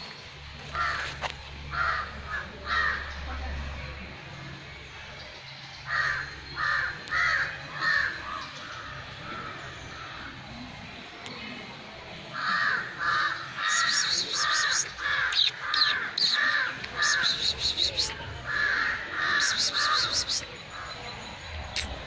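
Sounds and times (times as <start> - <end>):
crows cawing: 0.7 - 3.1, 5.9 - 10.3, 12.4 - 17.5, 18.5 - 20.2.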